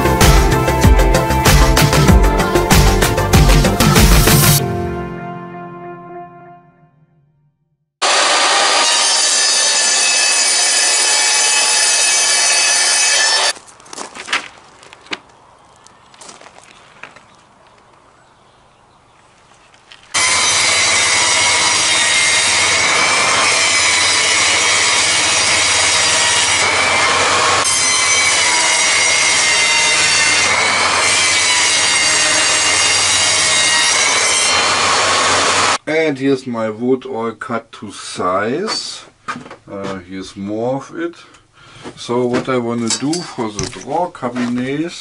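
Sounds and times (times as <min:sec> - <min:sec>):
table saw cutting board: 0:08.0 - 0:13.5, 0:20.2 - 0:35.8.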